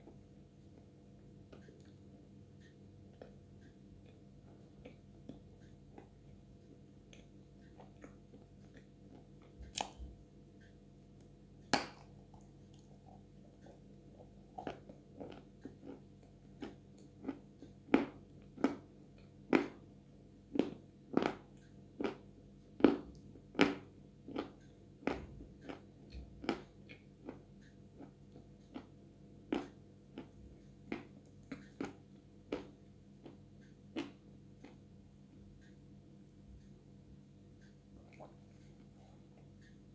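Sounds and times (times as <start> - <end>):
wet mouth chewing sounds: 7.1 - 10.1, 11.7 - 18.9, 22.8 - 34.8, 38.0 - 39.7.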